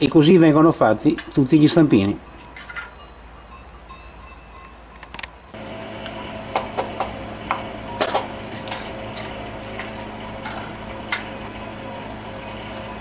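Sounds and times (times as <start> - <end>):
aluminium moulds clinking: 0.0 - 13.0
steady low hum: 5.4 - 13.0.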